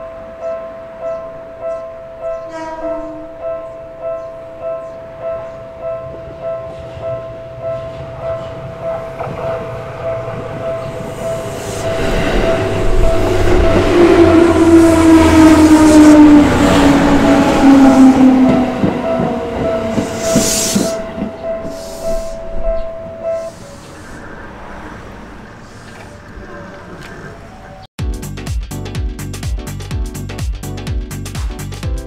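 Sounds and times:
level-crossing alarm bell ringing: 5.4 - 23.4
electric train motor whine: 9.7 - 20.8
train wheels clacking over rail joints: 18.4 - 22.4.

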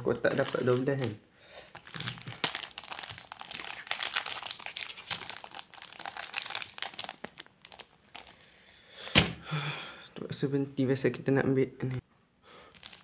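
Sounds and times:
plastic wrapper crinkling: 0.0 - 8.5, 12.6 - 13.0.

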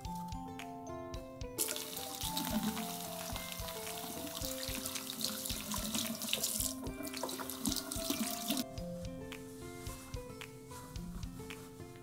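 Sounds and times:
tap water running over hands: 1.6 - 8.6.

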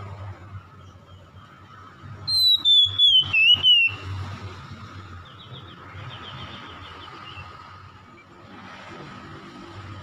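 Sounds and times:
bird whistled note: 2.3 - 4.0.

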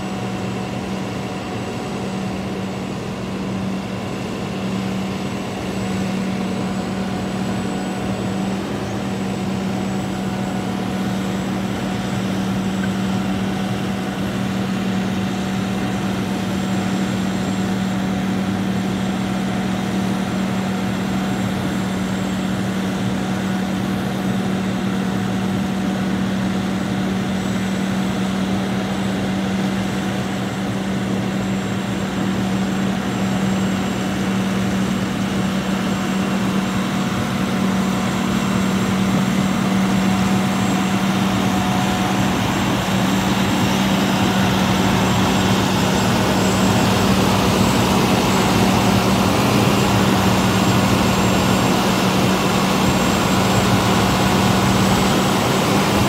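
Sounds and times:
diesel truck engine droning: 27.7 - 56.0.

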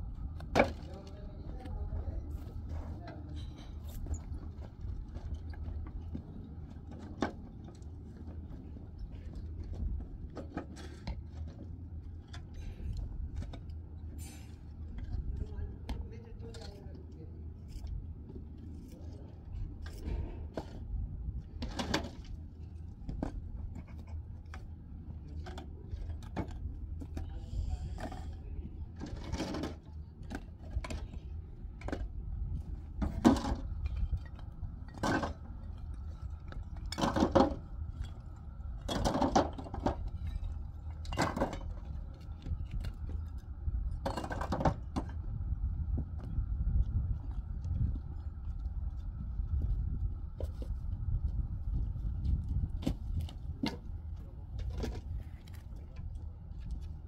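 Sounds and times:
steady low rumble: 0.0 - 57.0
bricks clinking and knocking: 44.0 - 45.2.

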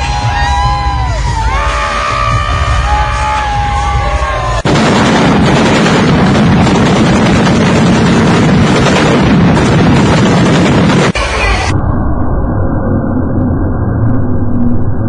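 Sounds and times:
entrance music: 0.0 - 7.7
stage pyrotechnics rushing: 2.8 - 11.7.

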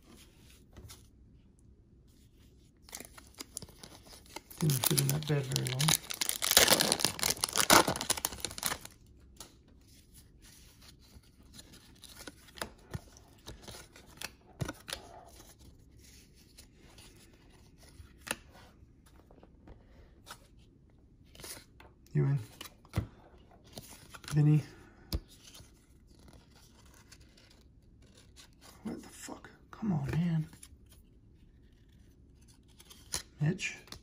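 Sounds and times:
wrapper tearing and crinkling: 2.9 - 9.0.

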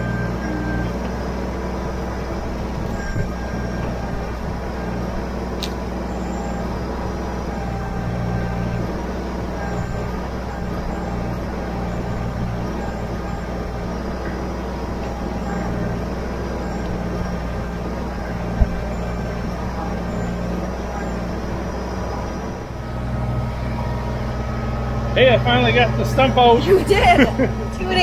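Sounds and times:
hydraulics lifting: 0.0 - 28.0
tractor diesel engine running: 0.0 - 28.0
sharp low thump: 16.8 - 19.8.

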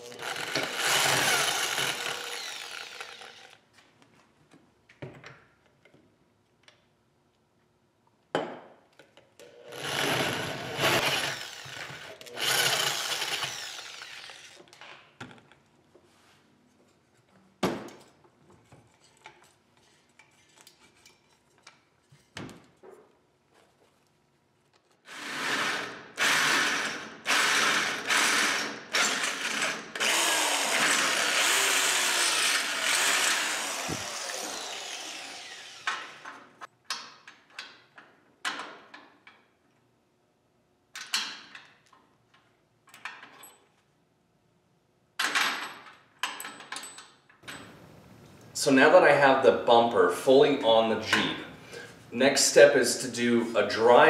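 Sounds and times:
power drill on steel plate: 0.0 - 3.6, 9.5 - 14.8, 25.1 - 36.5.

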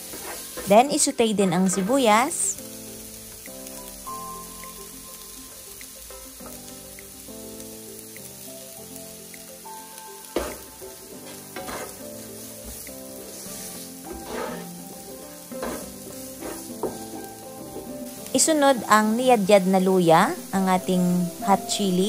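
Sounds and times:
wooden spatula scraping pan: 0.0 - 0.8, 1.5 - 2.2, 10.4 - 18.2
onion sizzling in hot oil: 0.0 - 22.0
soft background music: 0.0 - 22.0.

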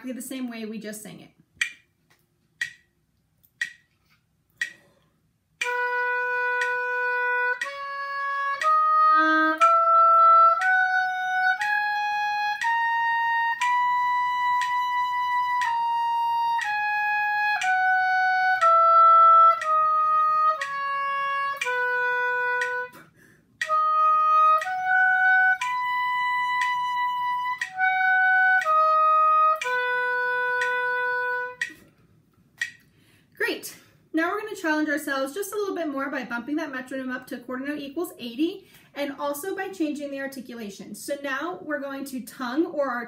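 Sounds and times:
breath: 4.7 - 5.2, 23.0 - 23.5, 32.9 - 34.1, 38.6 - 39.0
oboe playing a scale: 5.6 - 31.7.

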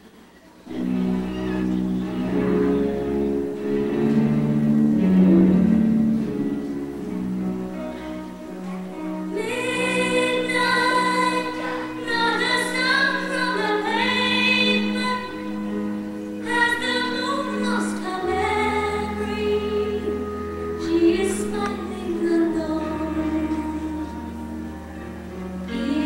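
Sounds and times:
slow ballad accompaniment: 0.7 - 26.0
woman singing: 9.3 - 24.6, 25.7 - 26.0.

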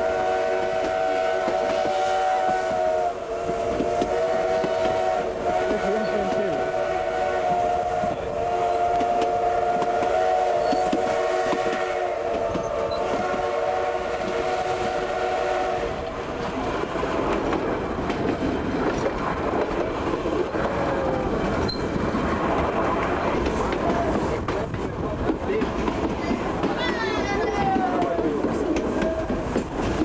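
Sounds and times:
steam locomotive whistle: 0.0 - 16.1
train wheels clattering on rails: 0.5 - 6.8, 7.4 - 15.2, 15.8 - 30.0.

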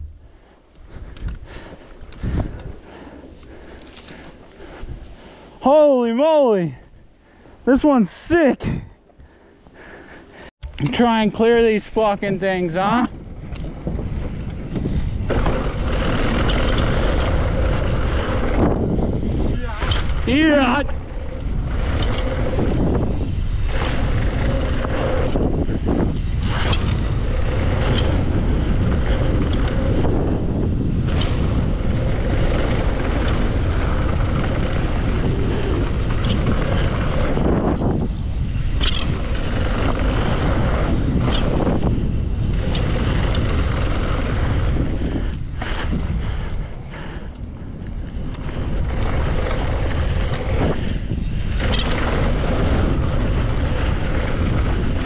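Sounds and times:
bike rattling: 0.0 - 55.0
bike tyres rolling on dirt: 0.0 - 55.0
wind rushing over microphone: 0.0 - 55.0.

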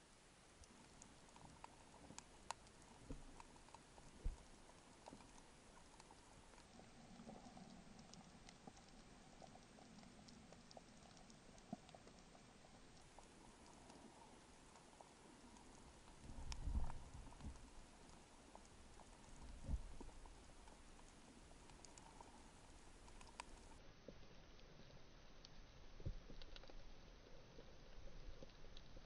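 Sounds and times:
faint low hum: 0.0 - 29.0
underwater crackling clicks: 0.6 - 23.8.

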